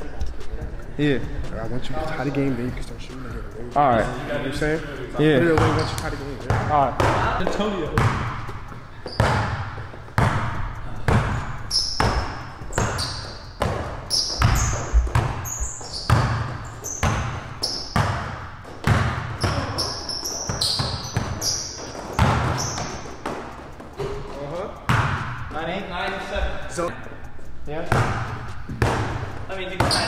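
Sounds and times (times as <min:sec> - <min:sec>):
sneakers squeaking on floor: 0:05.4 - 0:25.5, 0:27.9 - 0:30.0
basketball bouncing on hardwood: 0:05.5 - 0:11.4, 0:12.0 - 0:19.8, 0:20.4 - 0:24.2, 0:24.9 - 0:25.4, 0:27.9 - 0:30.0.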